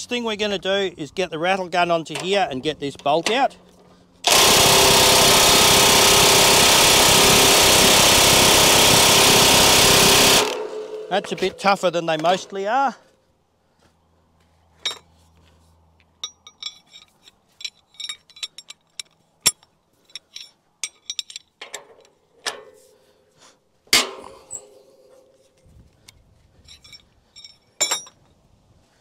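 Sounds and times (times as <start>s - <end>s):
metal tools clinking: 14.8s - 15.2s, 16.2s - 22.8s, 26.5s - 28.3s.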